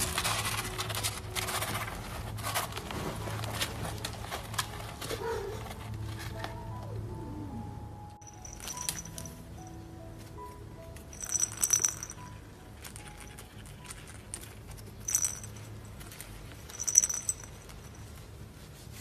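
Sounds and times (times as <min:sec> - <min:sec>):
faint soft background music: 0:00.0 - 0:19.0
cat toy jingling and rattling: 0:08.2 - 0:09.7, 0:11.0 - 0:18.3.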